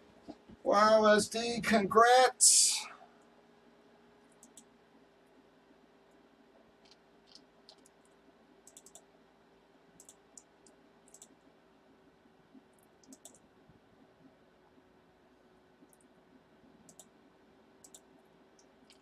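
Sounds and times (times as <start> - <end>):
faint steady hum: 0.0 - 19.0
mouse and keyboard clicks: 4.3 - 4.7, 6.8 - 9.1, 10.0 - 11.4, 13.0 - 13.4, 17.8 - 19.0.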